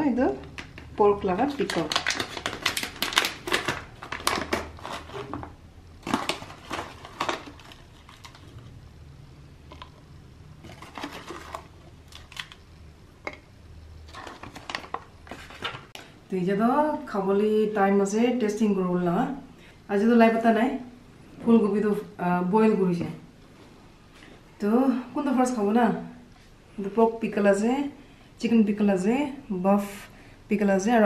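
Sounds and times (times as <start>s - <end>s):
plastic pouch crinkling: 1.3s - 8.7s, 10.6s - 12.7s, 14.0s - 16.0s.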